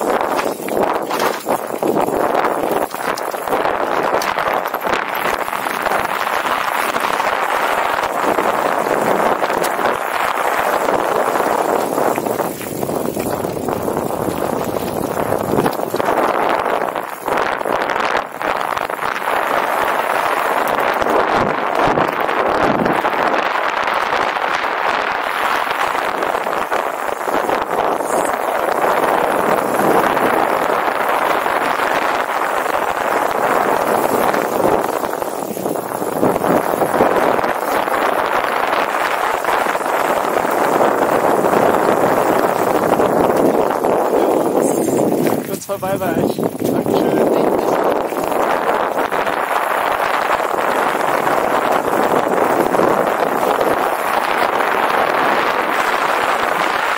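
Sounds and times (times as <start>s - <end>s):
clicks and rattles: 0.0s - 6.4s
bicycle tyres rolling over gravel: 0.0s - 56.9s
wind rushing over microphone: 0.0s - 56.9s.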